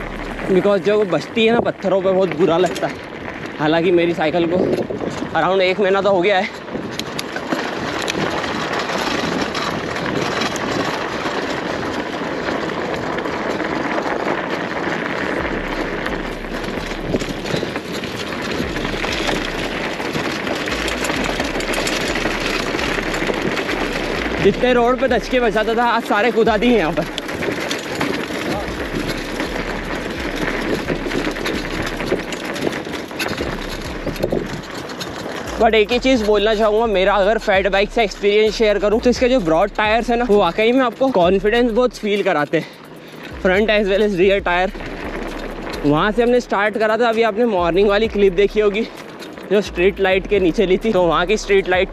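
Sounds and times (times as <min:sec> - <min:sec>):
bicycle tyres rumbling on gravel: 0:00.0 - 0:51.9
small clicks and rattles: 0:00.0 - 0:51.9.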